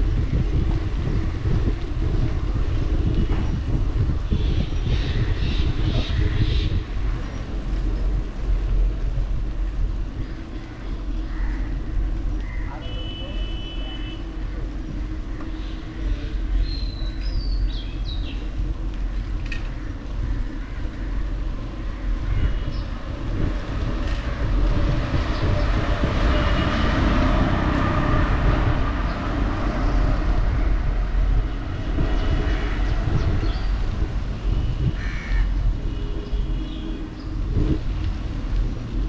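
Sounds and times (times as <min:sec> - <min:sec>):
street traffic rumble: 0:00.0 - 0:39.0.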